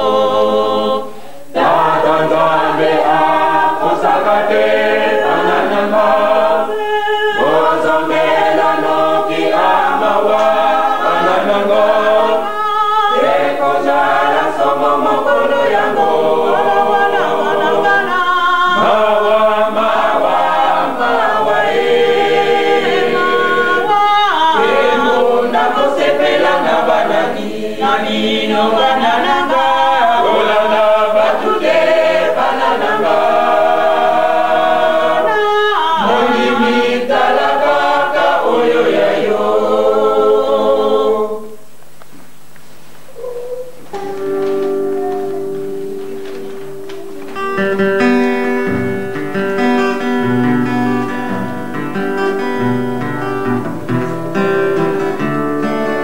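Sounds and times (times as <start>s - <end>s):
choir singing unaccompanied: 0.0s - 41.7s.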